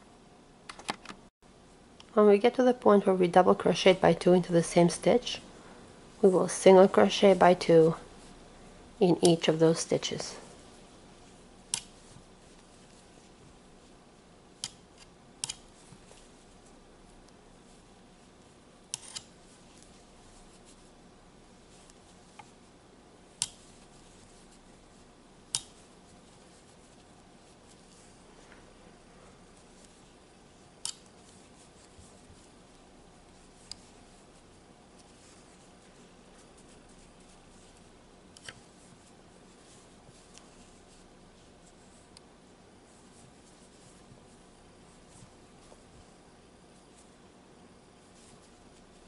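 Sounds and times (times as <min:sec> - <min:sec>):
faint steady hiss: 0:00.0 - 0:49.0
crochet hook clicking: 0:11.7 - 0:11.9, 0:18.9 - 0:19.3, 0:23.4 - 0:23.6, 0:25.5 - 0:25.8, 0:38.3 - 0:38.6
crochet hook clicks: 0:25.5 - 0:25.7.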